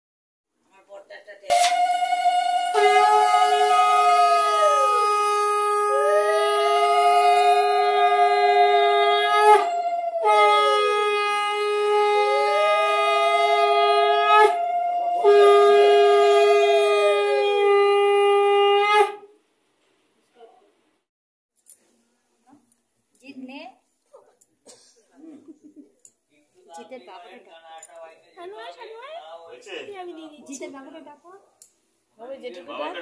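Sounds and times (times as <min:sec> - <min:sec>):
conch shell blasts: 0:01.5 - 0:14.6, 0:15.2 - 0:16.9.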